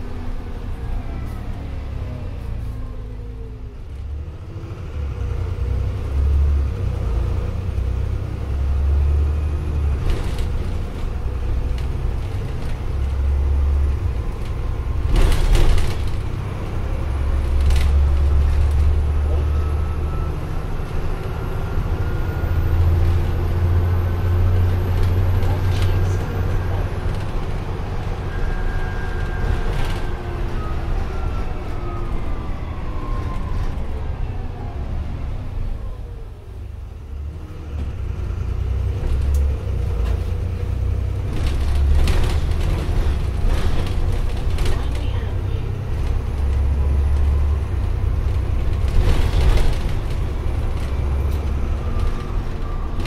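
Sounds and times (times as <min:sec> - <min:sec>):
bus engine rumble: 0:00.0 - 0:53.0
bus body knocks and rattles: 0:14.3 - 0:16.8, 0:41.2 - 0:45.3.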